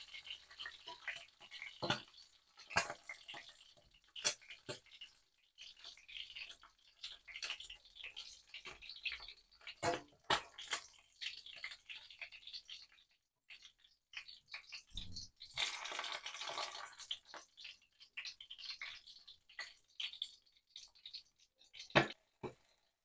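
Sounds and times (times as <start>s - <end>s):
hot oil crackling and popping: 0.0s - 23.0s
spatula clicking in pan: 0.3s - 12.9s.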